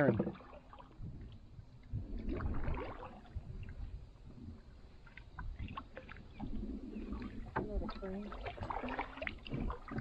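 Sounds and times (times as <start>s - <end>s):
paddle splashing water: 0.0s - 10.0s
steady low rumble: 0.9s - 8.3s.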